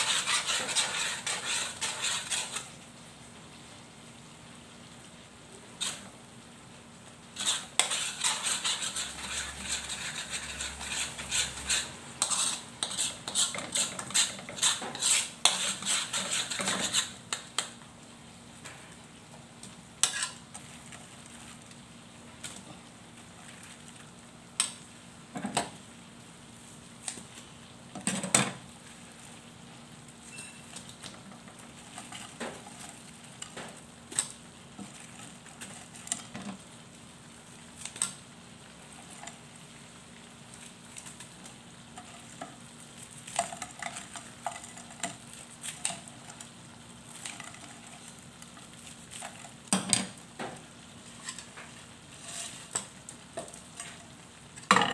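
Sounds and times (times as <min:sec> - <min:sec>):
sauce sizzling in a pan: 0:00.0 - 0:54.7.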